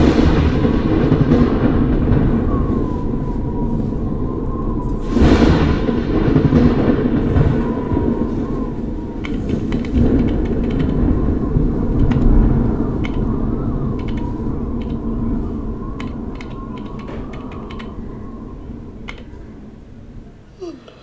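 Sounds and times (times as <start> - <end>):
low rumbling drone: 0.0 - 21.0
keyboard keys clicking: 9.2 - 11.0, 12.0 - 12.3, 13.0 - 13.2, 14.0 - 15.0, 16.0 - 18.0, 19.0 - 19.3.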